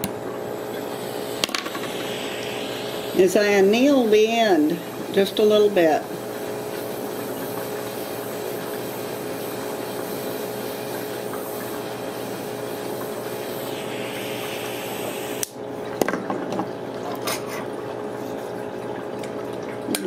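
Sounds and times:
gas torch hissing: 0.0s - 15.6s.

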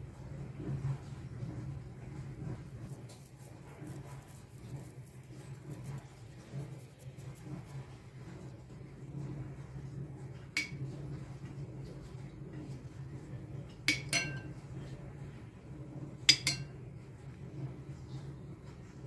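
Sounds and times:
spoon clinking on ceramic bowl: 13.9s - 14.5s, 16.3s - 16.8s.

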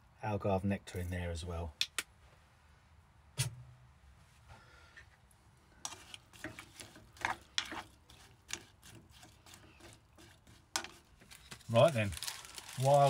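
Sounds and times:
spoon scraping a saucepan: 5.8s - 11.6s.

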